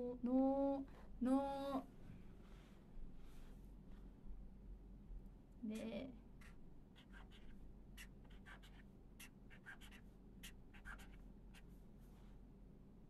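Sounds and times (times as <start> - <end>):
pen scratching on paper: 6.4 - 11.6.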